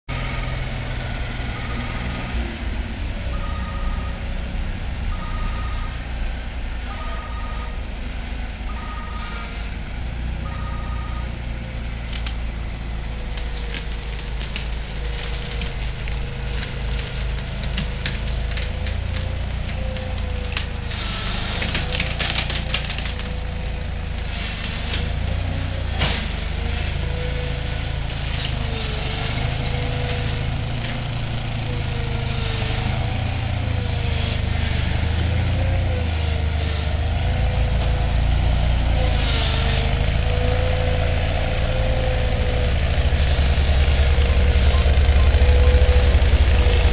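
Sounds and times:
small engine running: 0.1s - 46.9s
sharp clicks and rattles: 42.7s - 46.9s.

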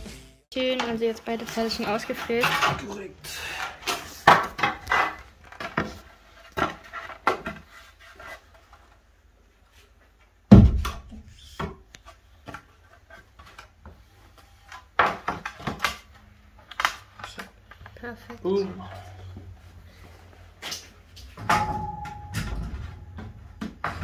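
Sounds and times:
wooden boards knocking and rubbing: 3.8s - 8.4s
heavy wooden thud: 10.5s - 11.1s.

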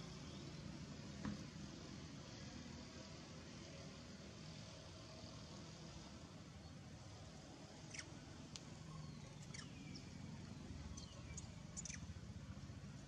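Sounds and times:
high-pitched chirping calls: 7.9s - 8.1s, 9.4s - 10.0s, 11.0s - 12.1s.

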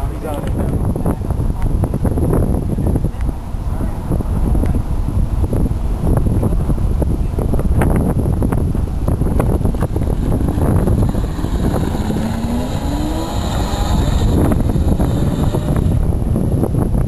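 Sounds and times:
wind buffeting microphone: 0.0s - 17.0s
kart driving away whining: 9.7s - 16.1s.

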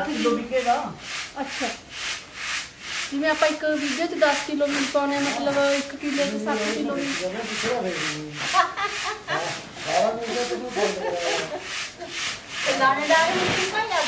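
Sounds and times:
people talking: 0.0s - 1.8s, 3.1s - 8.5s, 9.2s - 11.6s, 12.6s - 14.0s
grain rasping in sieve: 0.0s - 14.0s.

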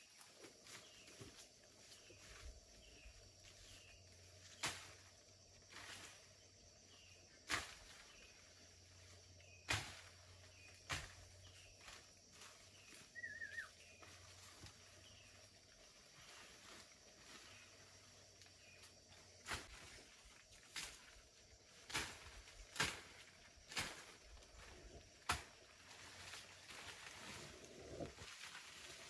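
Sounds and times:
warbling bird call: 13.1s - 13.8s.

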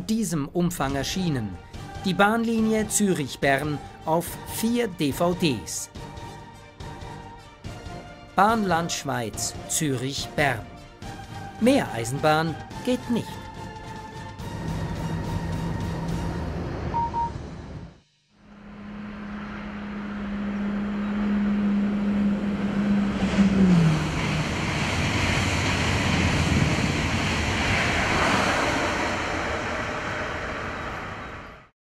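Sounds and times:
electric locomotive hum: 10.6s - 31.7s
train running noise: 11.4s - 31.7s.

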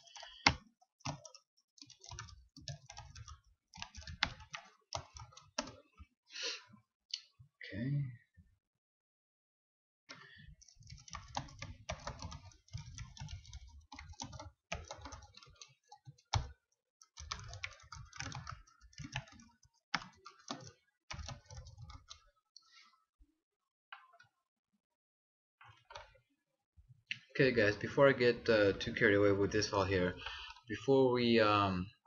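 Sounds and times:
typing on computer keyboard: 0.0s - 6.0s, 10.1s - 22.3s.

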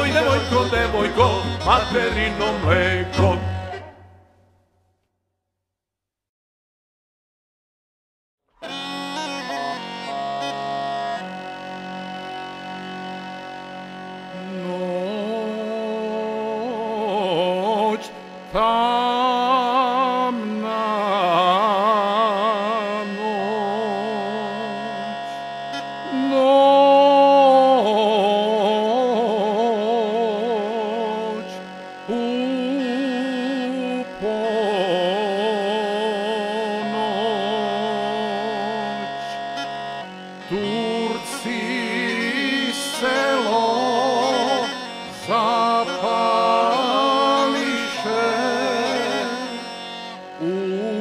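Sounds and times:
held accompaniment chords: 0.0s - 4.5s.

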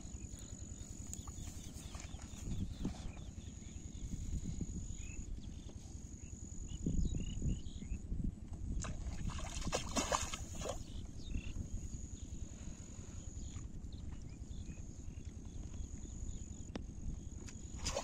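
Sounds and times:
steady low rumble: 0.0s - 18.0s
water splashing and sloshing: 1.2s - 3.2s, 8.8s - 10.9s, 17.6s - 18.0s.

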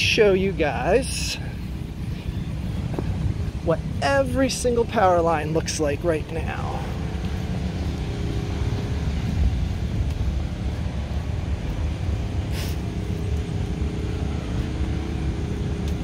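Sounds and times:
engine hum and rumble: 0.0s - 16.0s
high hiss: 12.4s - 13.0s.

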